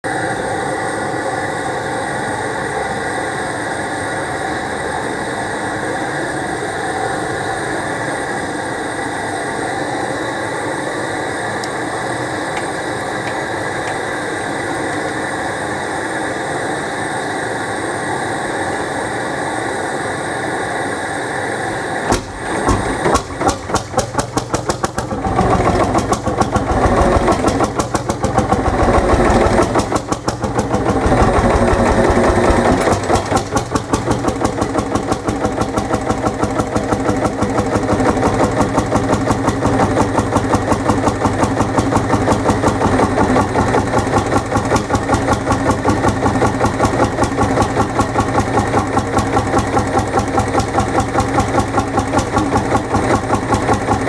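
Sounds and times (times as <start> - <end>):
propane burner running: 0.0 - 54.0
engine popping and running: 11.6 - 15.3, 22.0 - 54.0.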